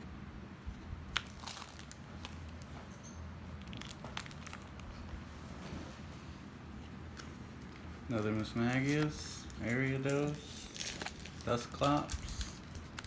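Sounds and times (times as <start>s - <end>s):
cards rustling and sliding: 7.1s - 13.0s.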